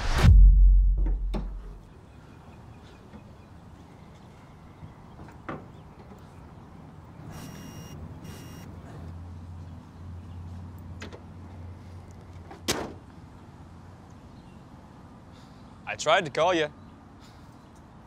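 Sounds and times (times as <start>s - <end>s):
sharp thump: 0.0s - 1.8s
handling knock: 1.0s - 1.7s
short electronic beeps: 7.3s - 8.7s.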